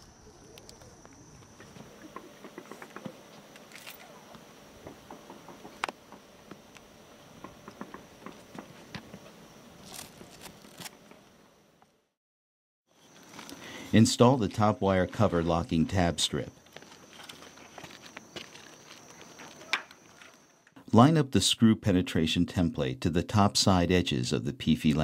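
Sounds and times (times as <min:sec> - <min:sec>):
faint high steady whine: 0:12.9 - 0:25.0.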